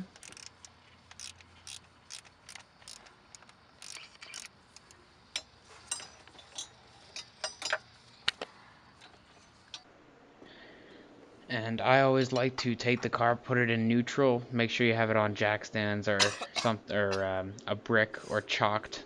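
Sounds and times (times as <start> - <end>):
socket ratchet clicking: 0.0 - 8.4.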